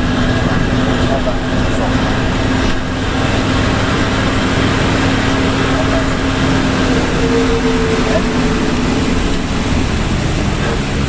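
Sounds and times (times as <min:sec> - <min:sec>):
bus diesel engine droning: 0:00.0 - 0:11.0
tyres hissing on wet road: 0:00.0 - 0:11.0
rain: 0:00.1 - 0:11.0.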